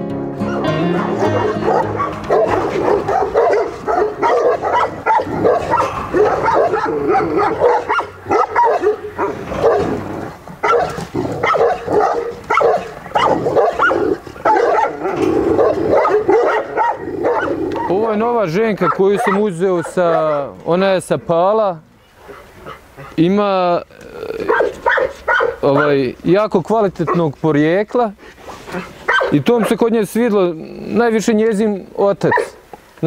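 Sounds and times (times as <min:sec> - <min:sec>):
dog barking and whining: 0:00.4 - 0:18.0, 0:18.8 - 0:20.6, 0:24.4 - 0:26.0, 0:28.7 - 0:29.8, 0:32.3 - 0:32.6.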